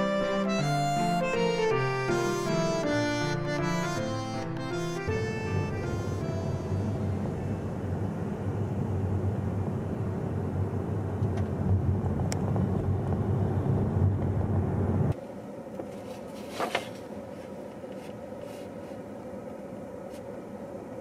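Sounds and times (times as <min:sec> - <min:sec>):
faint steady hum: 0:00.0 - 0:21.0
road and engine noise in car: 0:04.8 - 0:21.0.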